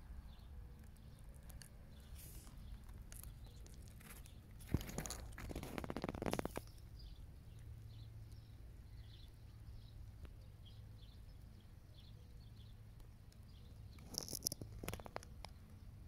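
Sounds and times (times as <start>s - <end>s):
crackling rustle: 0.7s - 8.7s, 12.9s - 16.0s.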